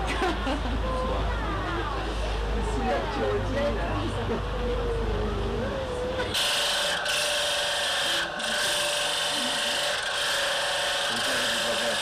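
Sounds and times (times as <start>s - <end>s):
electric motor whine: 6.1s - 12.0s
grinding wheel grinding: 6.2s - 12.0s.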